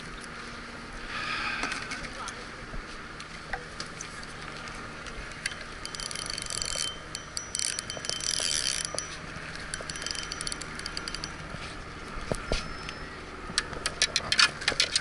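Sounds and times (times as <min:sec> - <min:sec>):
fishing reel ratcheting: 0:05.4 - 0:11.6.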